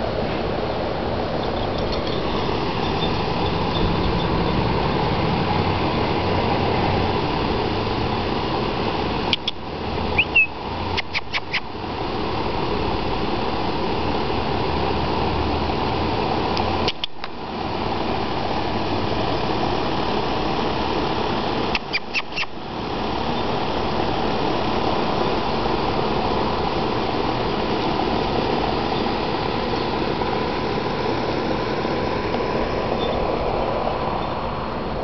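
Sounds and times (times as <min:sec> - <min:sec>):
air conditioner unit humming: 0:00.0 - 0:35.0
quick clicks: 0:11.0 - 0:11.6.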